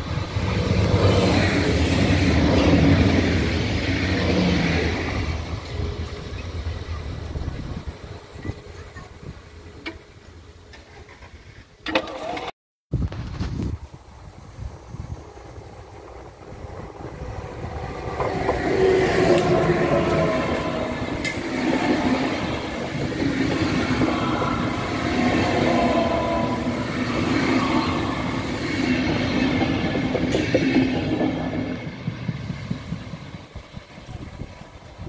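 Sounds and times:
passenger train passing: 0:00.0 - 0:11.1, 0:14.0 - 0:35.0
steady tones: 0:16.0 - 0:31.9.

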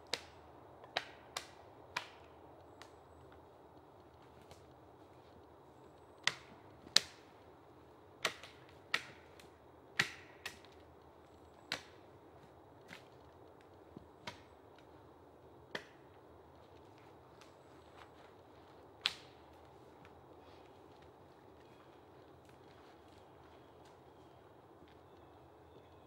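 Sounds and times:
faint steady hiss: 0:00.0 - 0:26.0
dry wood cracking and snapping: 0:06.2 - 0:07.3, 0:08.2 - 0:15.0, 0:15.7 - 0:25.3.

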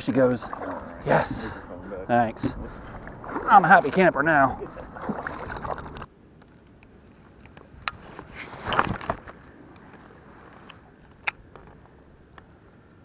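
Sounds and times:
brief rustle: 0:07.5 - 0:11.8.

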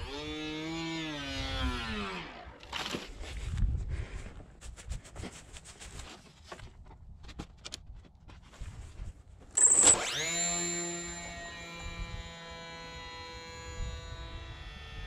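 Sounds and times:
hand tools clicking and scraping: 0:09.5 - 0:11.3.

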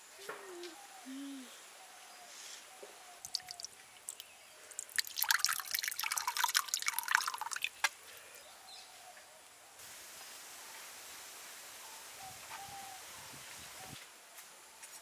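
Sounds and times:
thick sauce pouring into bowl: 0:03.2 - 0:07.8.

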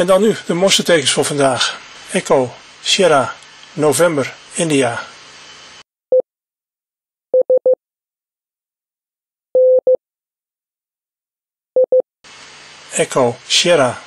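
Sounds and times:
morse code beeps: 0:07.4 - 0:07.8, 0:09.6 - 0:10.0, 0:11.8 - 0:12.0.

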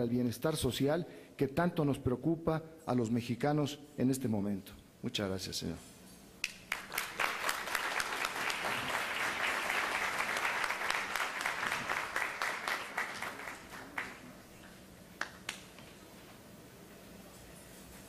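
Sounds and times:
audience applauding: 0:06.6 - 0:14.5.

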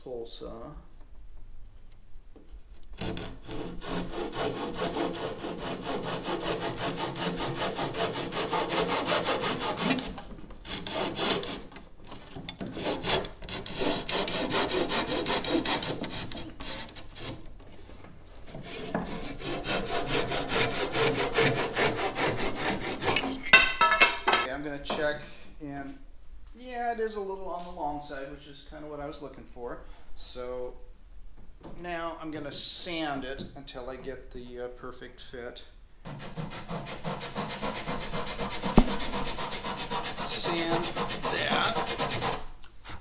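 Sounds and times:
hand saw cutting wood: 0:03.0 - 0:17.5, 0:18.4 - 0:23.5, 0:36.0 - 0:43.0.

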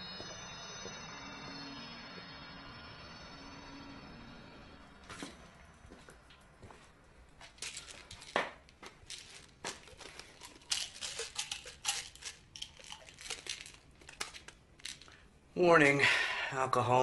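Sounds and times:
packaging crinkling and clicking: 0:07.4 - 0:15.2.

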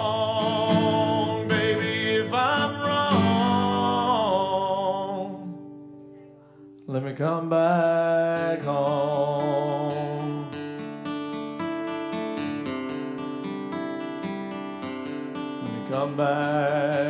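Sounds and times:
man singing: 0:00.0 - 0:05.7, 0:06.9 - 0:10.8, 0:15.6 - 0:17.0
strummed acoustic guitar: 0:00.0 - 0:17.0.

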